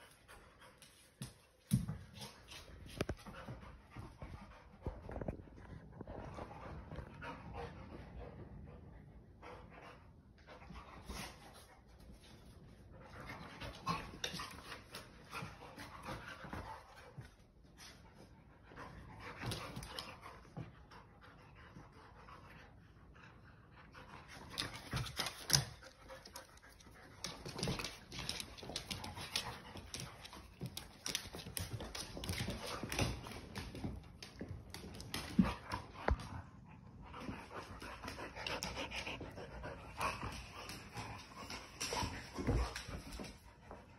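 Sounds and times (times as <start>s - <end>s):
dogs panting: 2.2s - 43.9s
dogs scuffling: 24.2s - 43.9s.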